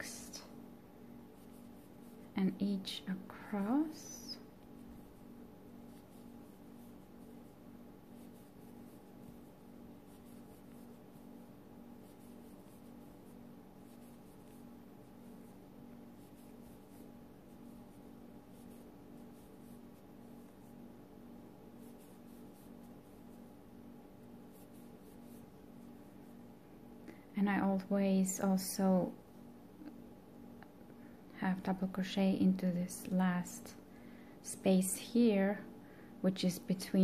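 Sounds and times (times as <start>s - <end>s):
steady low hum: 0.0s - 37.0s
yarn rustling on crochet hook: 1.3s - 20.9s, 21.7s - 26.4s.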